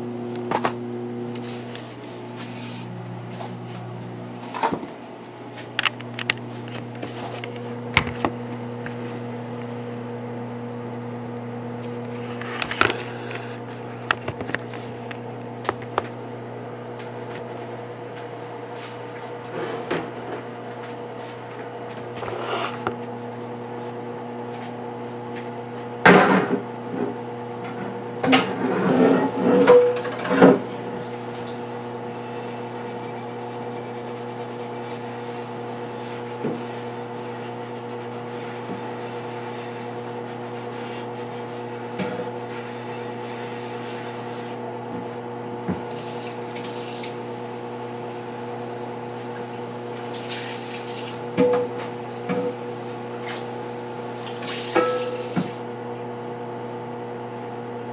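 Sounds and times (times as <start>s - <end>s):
kitchen tap running into sink: 45.8s - 47.2s, 50.0s - 51.2s, 54.1s - 55.6s
kitchenware knocking in sink: 54.8s - 55.6s.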